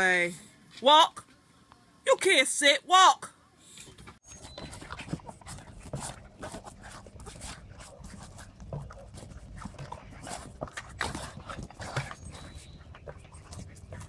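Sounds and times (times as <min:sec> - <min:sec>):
dogs panting: 0:04.3 - 0:14.0.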